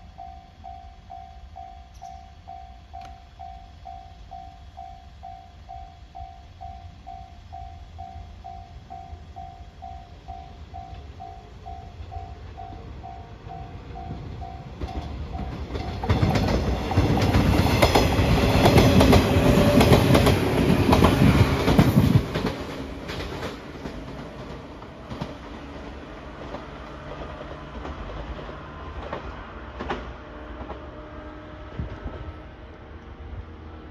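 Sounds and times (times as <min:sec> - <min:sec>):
train wheels clicking over rail joints: 0:10.7 - 0:31.0.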